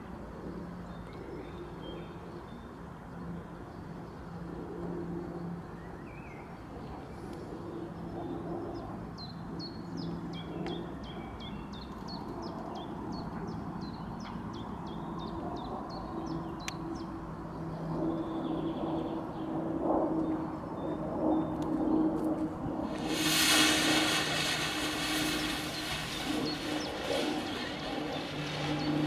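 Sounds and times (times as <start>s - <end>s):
low droning hum: 15.2s - 29.0s.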